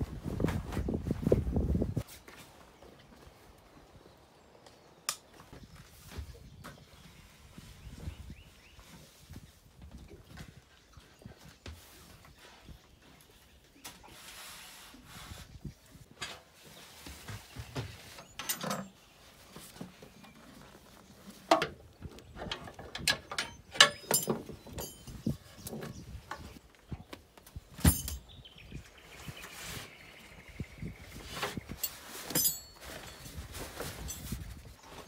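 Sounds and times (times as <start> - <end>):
metal poles knocking and rattling: 17.7 - 19.0, 21.4 - 26.5, 27.8 - 28.3, 31.5 - 34.4.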